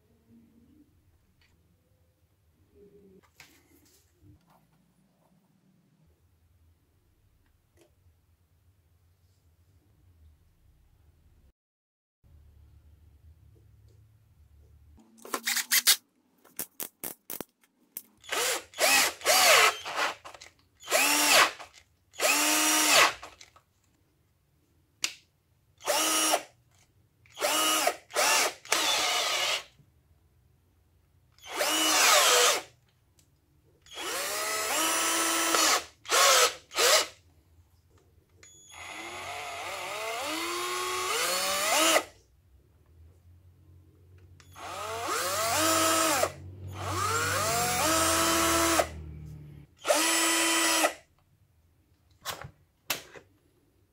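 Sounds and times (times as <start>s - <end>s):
cordless drill motor whine: 18.2s - 20.1s, 20.8s - 21.5s, 22.2s - 23.2s, 25.9s - 26.4s, 27.4s - 29.7s, 31.4s - 32.6s, 33.9s - 37.0s, 38.5s - 42.0s, 44.4s - 48.9s, 49.8s - 50.9s.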